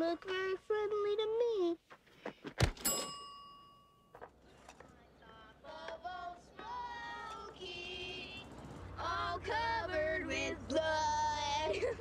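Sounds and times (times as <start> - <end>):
sharp hit with bell-like ring: 2.8 - 4.0
song with singing: 5.2 - 11.9.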